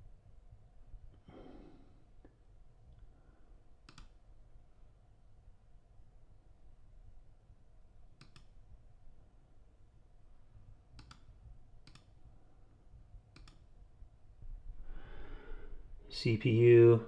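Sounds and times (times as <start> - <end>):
computer mouse clicks: 3.8 - 4.2, 8.1 - 8.6, 10.9 - 12.2, 13.3 - 13.7.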